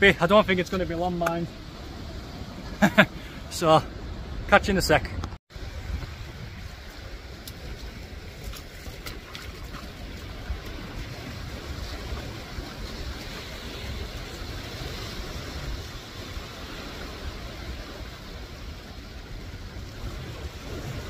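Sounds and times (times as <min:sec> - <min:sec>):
wind buffeting microphone: 0:05.5 - 0:21.0
waves washing over rocks: 0:05.6 - 0:21.0.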